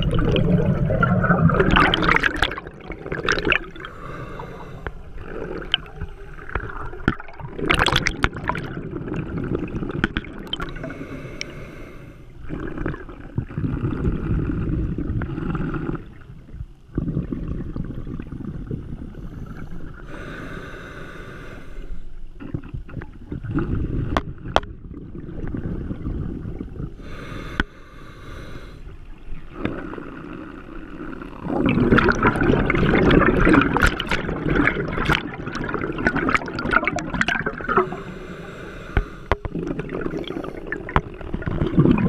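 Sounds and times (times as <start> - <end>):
rush of exhaled bubbles: 0.0 - 11.1, 12.4 - 16.2, 22.4 - 27.4, 29.2 - 42.0
diver breathing through regulator: 3.4 - 6.9, 10.6 - 12.4, 19.1 - 22.2, 26.9 - 29.0, 37.5 - 41.0.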